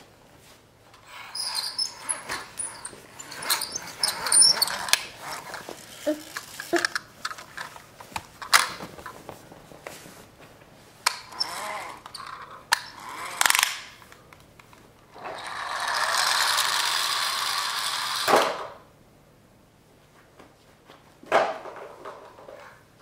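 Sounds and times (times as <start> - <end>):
toy car rolling across floor: 0.9 - 8.8, 11.0 - 14.0, 15.1 - 18.8
toy cars clicking on wooden floor: 1.0 - 7.8, 11.1 - 14.0, 15.2 - 18.7.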